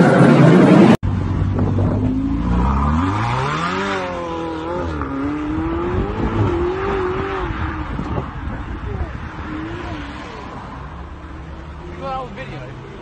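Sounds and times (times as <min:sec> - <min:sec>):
sports car engine revving: 0:00.5 - 0:10.5.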